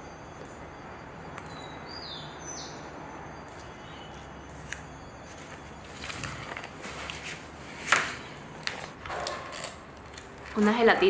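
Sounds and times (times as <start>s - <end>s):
low background hum: 0.0s - 11.0s
bird chirping: 1.4s - 5.7s.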